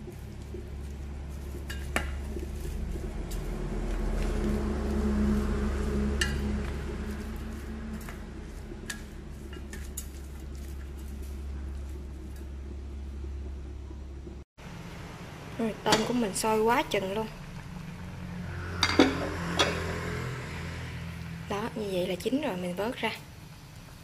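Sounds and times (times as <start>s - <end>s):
steady low hum: 0.0s - 24.0s
rushing noise: 2.7s - 9.4s, 17.7s - 21.5s.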